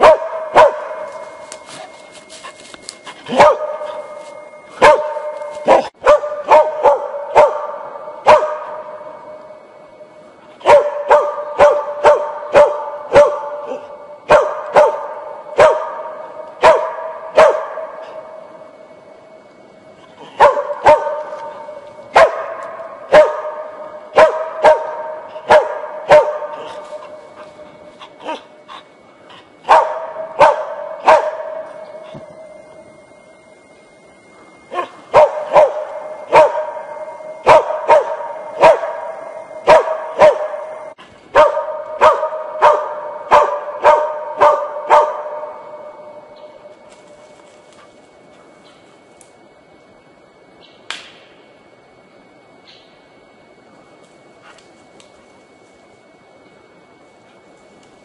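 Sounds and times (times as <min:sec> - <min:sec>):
dog barking with echo: 0:00.0 - 0:01.1, 0:03.3 - 0:04.0, 0:04.8 - 0:09.1, 0:10.6 - 0:18.2, 0:20.4 - 0:27.4, 0:29.7 - 0:32.0, 0:34.7 - 0:46.1.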